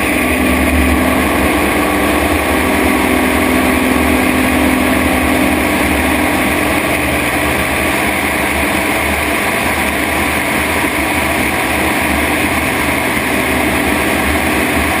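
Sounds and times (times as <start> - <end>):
rush of passing air: 0.0 - 10.0
propeller plane engine: 0.0 - 15.0.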